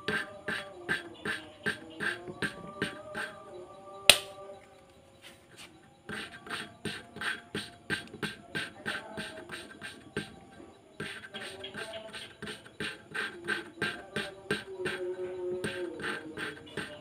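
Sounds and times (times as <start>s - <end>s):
sharp click: 4.1s - 4.4s.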